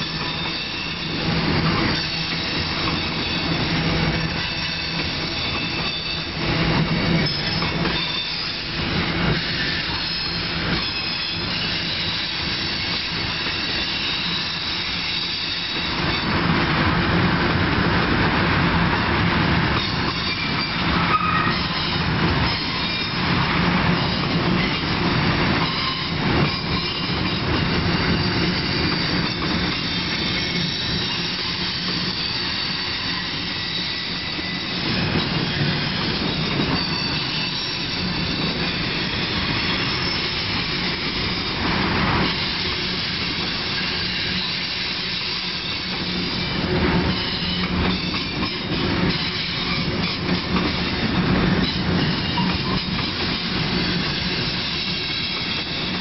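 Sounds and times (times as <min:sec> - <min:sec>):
freight train rolling past: 0:00.0 - 0:56.0
train clanks: 0:00.0 - 0:56.0
wheel squeals: 0:07.1 - 0:16.2, 0:25.6 - 0:41.6, 0:42.2 - 0:56.0.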